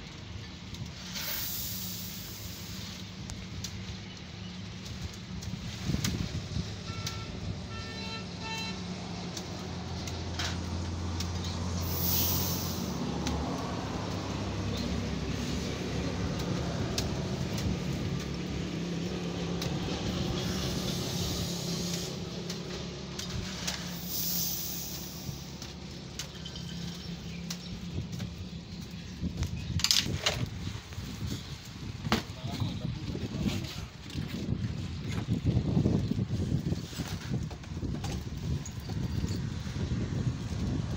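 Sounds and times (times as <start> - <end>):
hiss: 0.9 - 3.8, 11.2 - 15.7, 19.6 - 22.6, 23.3 - 26.2
car horn toots: 6.8 - 8.8.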